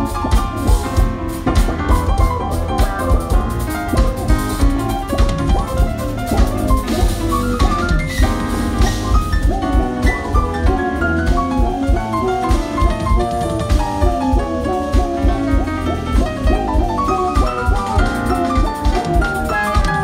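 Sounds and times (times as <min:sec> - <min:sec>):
drum kit busy beat: 0:00.0 - 0:20.0
jazz-funk band playing: 0:00.0 - 0:20.0.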